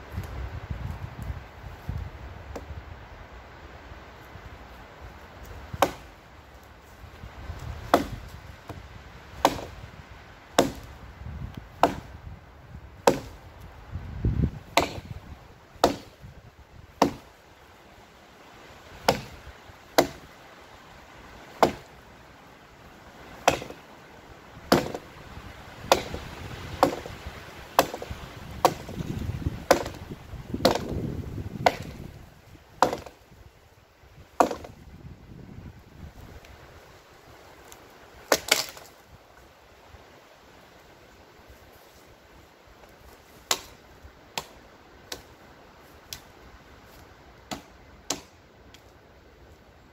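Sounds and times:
hatchet chopping wood: 5.7s - 6.1s, 7.8s - 8.8s, 9.4s - 9.8s, 10.5s - 11.0s, 11.7s - 12.2s, 13.0s - 13.4s, 14.6s - 15.2s, 15.8s - 16.2s, 17.0s - 17.3s, 19.0s - 20.3s, 21.5s - 21.9s, 23.4s - 23.9s, 24.6s - 25.1s, 25.8s - 27.2s, 27.8s - 32.1s, 32.8s - 33.2s, 34.4s - 34.8s, 38.3s - 38.9s, 43.4s - 45.3s, 47.4s - 48.3s.

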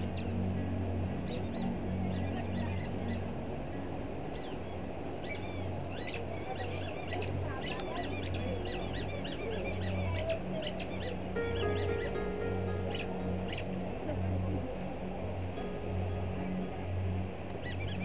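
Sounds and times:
low pulsing drone: 11.4s - 18.0s.

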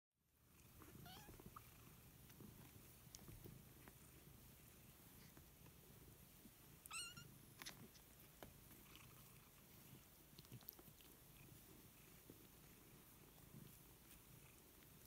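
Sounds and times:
kittens wrestling on a blanket: 0.7s - 15.0s
kitten mewing: 6.9s - 7.3s.

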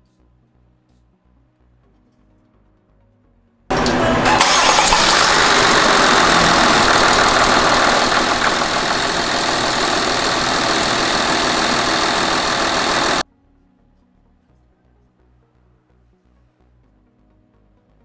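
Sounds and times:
diesel engine starting and running: 3.7s - 13.2s.

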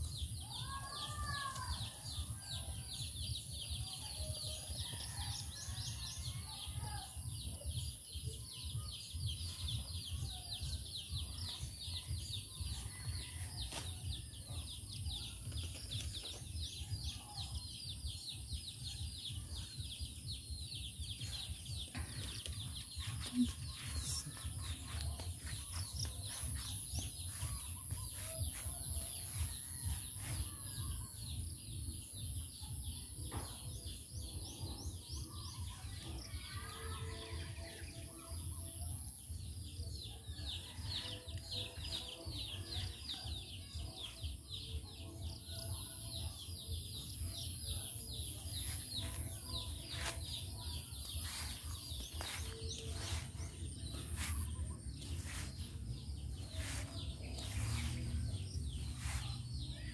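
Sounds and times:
birds chirping: 19.8s - 30.6s, 47.0s - 59.9s.

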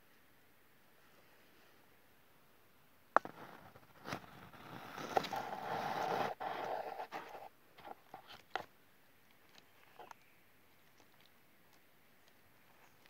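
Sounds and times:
scraping rustle: 3.3s - 8.7s.

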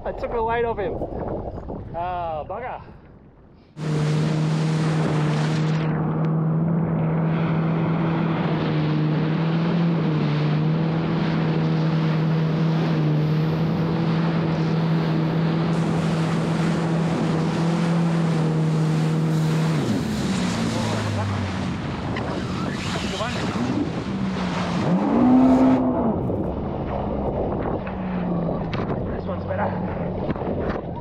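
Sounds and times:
wind buffeting microphone: 0.0s - 3.6s, 10.8s - 31.0s
jet ski engine droning: 3.7s - 31.0s
rush of water and spray: 3.8s - 6.0s, 7.2s - 30.0s.

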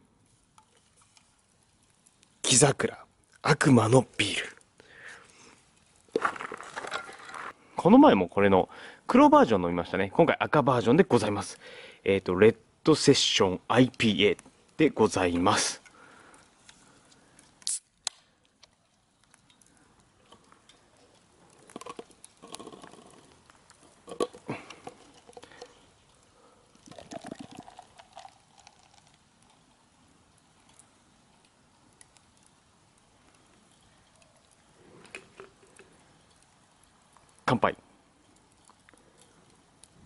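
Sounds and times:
beer can opening hiss: 17.5s - 18.4s, 34.2s - 36.0s
beer pouring into a cup: 19.6s - 31.6s, 33.4s - 37.5s.

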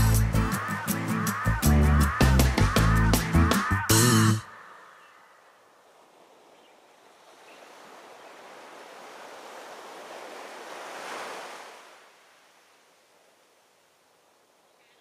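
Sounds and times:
sea wave washing: 4.4s - 14.1s.

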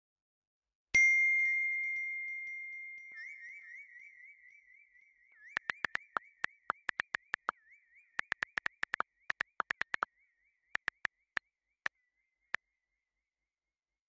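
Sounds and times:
phone keyboard taps: 5.6s - 7.5s, 8.2s - 10.0s, 10.8s - 11.1s.

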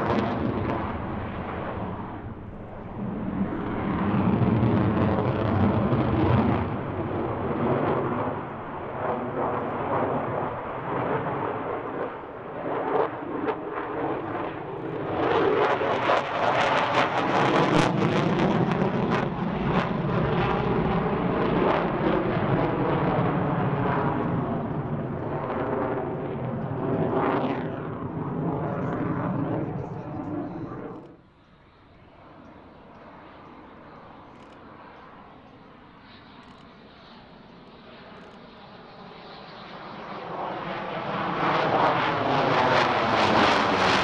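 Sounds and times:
jet engine roaring overhead: 0.0s - 44.0s.

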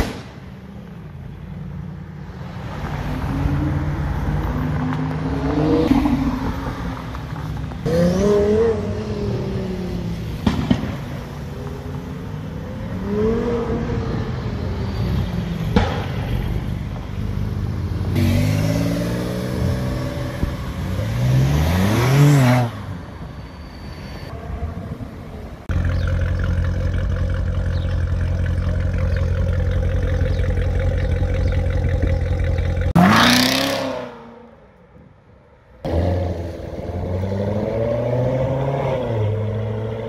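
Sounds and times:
car engine revving: 25.6s - 34.5s
car engine idling: 25.7s - 33.0s
car accelerating away: 25.7s - 34.4s, 35.9s - 40.0s.

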